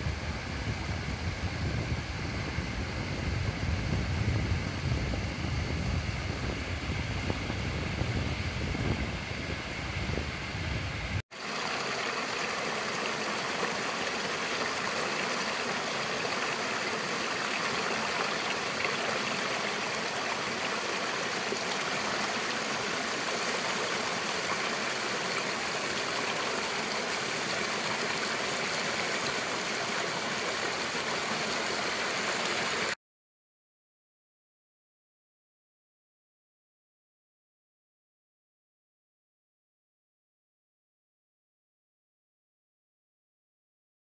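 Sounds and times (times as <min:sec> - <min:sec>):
stream splashing over stones: 0:11.3 - 0:33.0.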